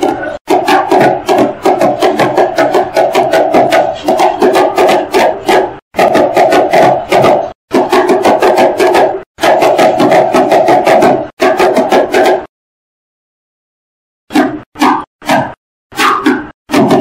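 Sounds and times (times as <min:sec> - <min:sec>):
sticks drumming on cardboard box: 0:00.0 - 0:12.5, 0:16.7 - 0:17.0.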